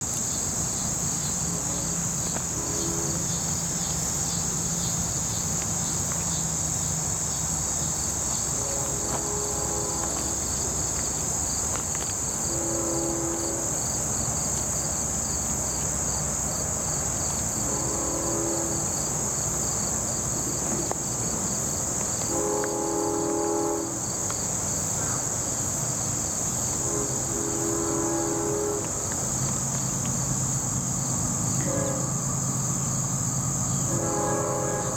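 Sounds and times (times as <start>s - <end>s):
insects droning: 0.0s - 34.9s
distant train horn: 1.2s - 5.0s, 8.1s - 14.4s, 17.5s - 21.5s, 22.2s - 24.3s, 26.0s - 34.9s.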